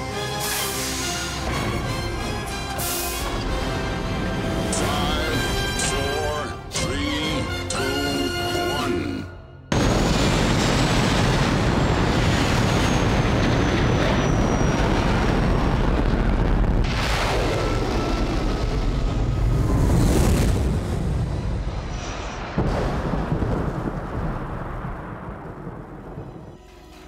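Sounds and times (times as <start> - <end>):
rocket engines roaring: 9.7 - 24.2.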